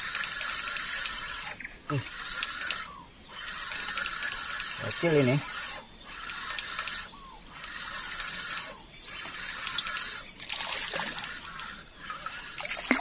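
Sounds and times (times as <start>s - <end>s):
water trickling: 7.6s - 13.0s.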